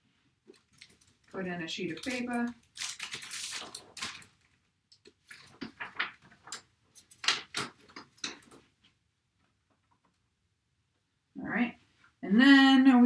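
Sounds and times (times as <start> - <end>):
paper rustling: 0.5 - 8.7.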